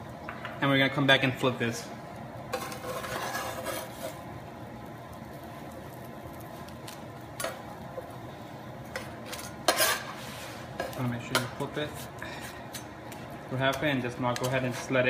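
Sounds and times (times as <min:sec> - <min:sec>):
spatula scraping griddle: 0:02.5 - 0:04.3, 0:08.9 - 0:15.0
hot griddle hissing: 0:05.4 - 0:15.0.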